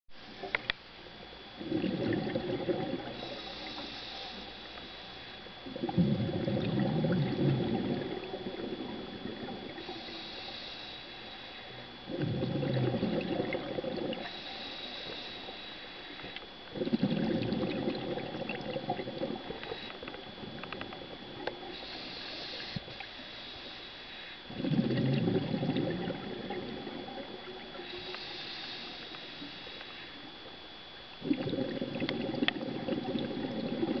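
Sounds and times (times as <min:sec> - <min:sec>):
rush of exhaled bubbles: 0:01.6 - 0:03.3, 0:05.7 - 0:09.9, 0:12.1 - 0:14.3, 0:16.7 - 0:22.0, 0:24.5 - 0:28.0, 0:31.2 - 0:34.0
regulator inhale hiss: 0:03.0 - 0:05.5, 0:09.7 - 0:12.2, 0:14.0 - 0:16.5, 0:19.2 - 0:20.7, 0:21.4 - 0:24.7, 0:27.7 - 0:30.3.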